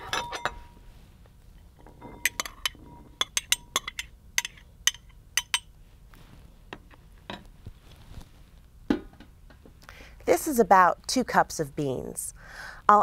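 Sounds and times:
metal spoon clinking on bowls: 0.0s - 0.7s, 1.8s - 5.7s.

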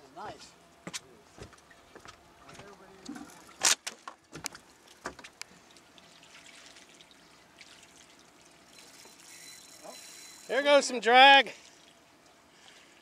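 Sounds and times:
water lapping against boat hull: 1.4s - 9.2s.

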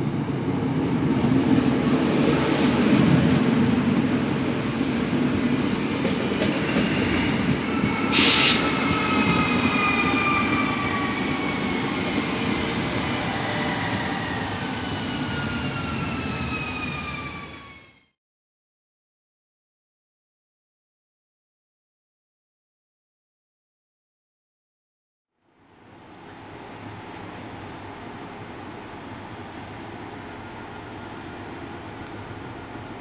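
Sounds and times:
train wheels rumbling on track: 0.0s - 17.8s
brief hiss: 8.1s - 8.9s.

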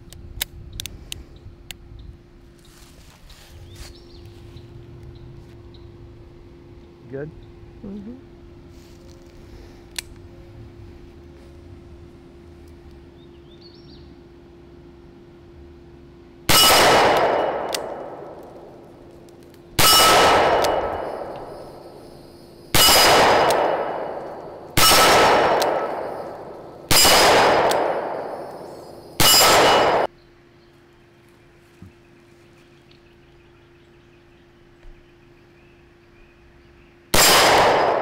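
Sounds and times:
revolver shots ringing: 16.5s - 18.4s, 19.8s - 21.8s, 22.7s - 30.1s.

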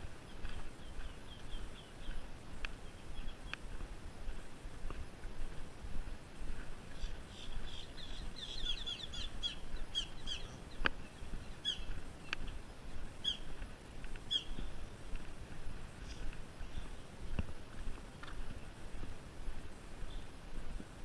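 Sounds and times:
small birds chirping: 0.0s - 4.4s, 6.8s - 15.1s, 16.0s - 19.1s, 20.0s - 20.4s
footsteps on concrete: 0.4s - 8.2s, 10.8s - 20.9s.

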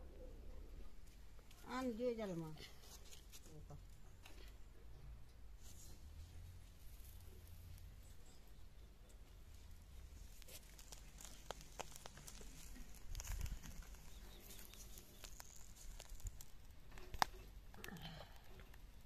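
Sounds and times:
leaves rustling and tearing: 2.7s - 3.5s, 10.0s - 18.6s.

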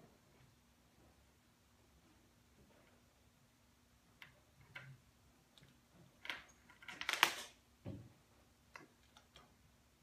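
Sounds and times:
small clicks and rattles of parts: 4.2s - 7.6s.

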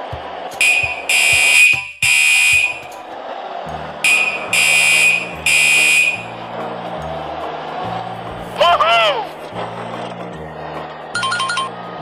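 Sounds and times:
background music with beat: 0.0s - 12.0s
buzzing electronic beeps: 0.6s - 2.8s, 4.1s - 6.3s.

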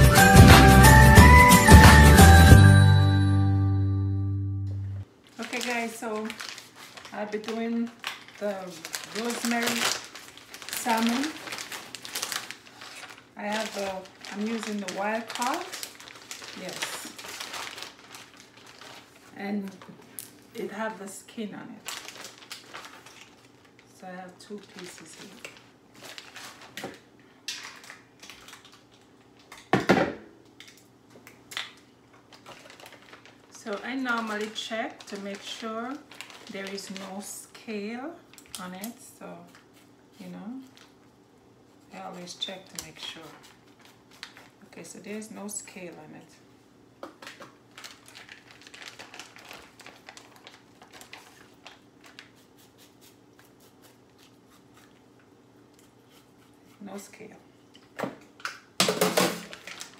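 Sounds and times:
plastic bag rustling: 5.2s - 20.8s, 21.5s - 29.4s, 31.7s - 44.9s, 47.2s - 55.0s, 59.0s - 59.9s
plastic wrap crinkling: 5.2s - 29.7s, 30.5s - 46.0s, 47.0s - 56.7s, 57.8s - 59.9s.

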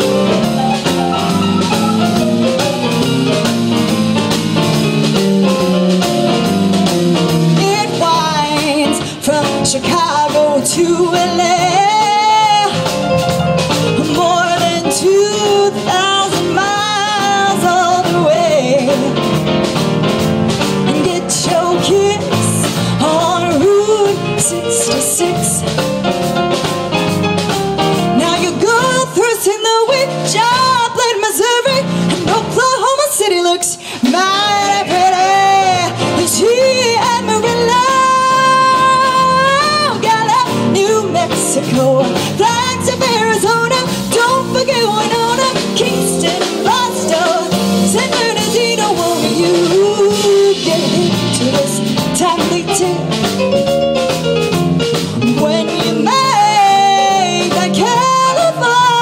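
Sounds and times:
live band playing: 0.0s - 59.0s
woman singing: 7.5s - 13.3s, 13.9s - 19.2s, 20.8s - 25.8s, 28.2s - 53.4s, 55.2s - 59.0s.

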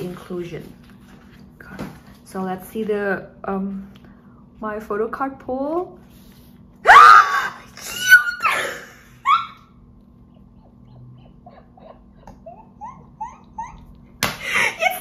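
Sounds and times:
woman squealing excitedly: 6.8s - 9.8s.

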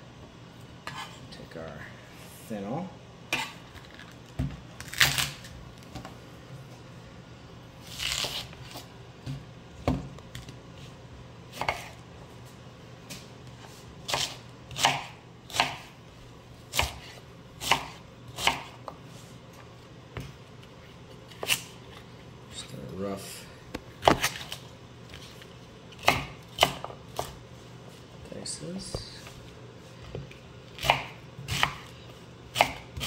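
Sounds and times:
knife cutting on a cutting board: 11.5s - 12.0s, 14.1s - 15.9s, 16.7s - 18.9s, 30.3s - 33.0s.

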